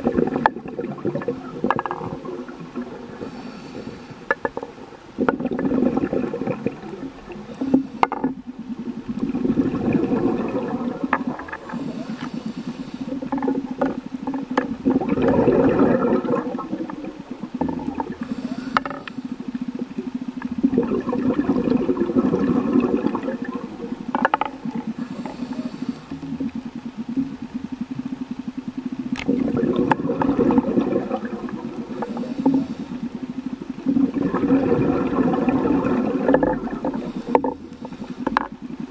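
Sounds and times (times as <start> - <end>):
gurgling exhaled bubbles: 0.0 - 38.9
regulator hiss on inhale: 3.1 - 4.4, 7.4 - 8.4, 11.6 - 13.4, 18.2 - 19.8, 24.9 - 26.4, 31.9 - 33.4, 36.8 - 38.5.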